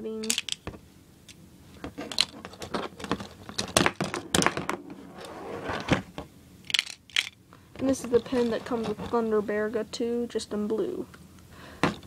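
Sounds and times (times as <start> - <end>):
plastic toy parts clicking: 0.2 - 0.6, 6.7 - 7.4.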